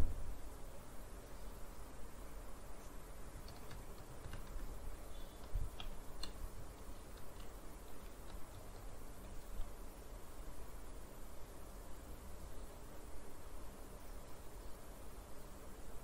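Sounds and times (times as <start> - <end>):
low steady background hum: 0.0 - 16.0
keystrokes on computer keyboard: 3.4 - 4.8, 5.4 - 9.7.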